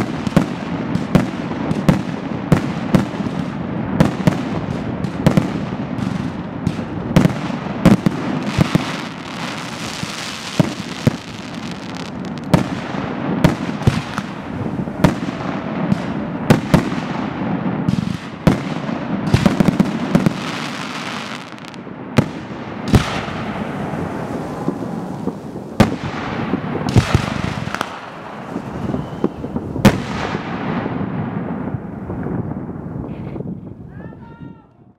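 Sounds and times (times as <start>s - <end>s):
fireworks crackle: 0.0s - 33.8s.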